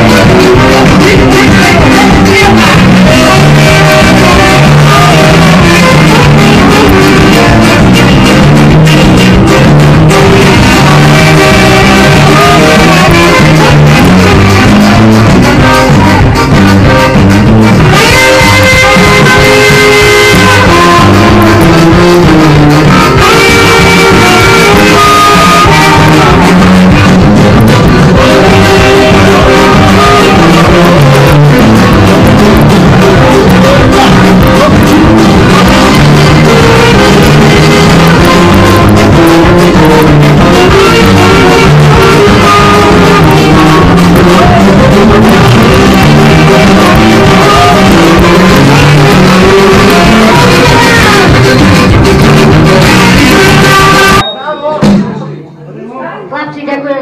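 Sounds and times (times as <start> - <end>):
saxophones playing a melody: 0.0 - 54.2
electric guitar: 0.0 - 55.0
drums: 0.0 - 55.4
keyboards: 0.0 - 55.8.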